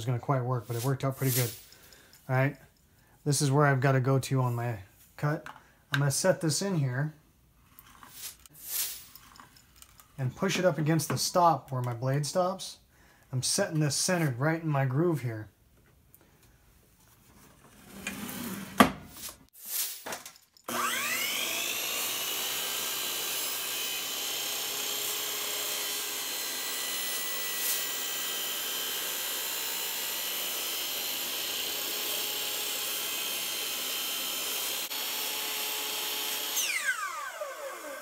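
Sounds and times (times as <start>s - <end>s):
miter saw motor whining: 20.7s - 38.0s
saw cutting plastic pipe: 20.7s - 38.0s.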